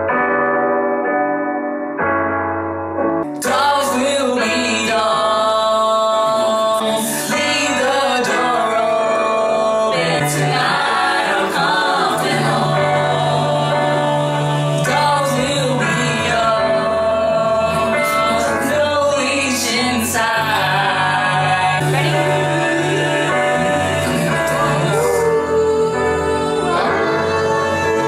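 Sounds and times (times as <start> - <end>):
keyboard chords: 0.0 - 28.0
woman singing: 21.7 - 23.5, 24.1 - 28.0.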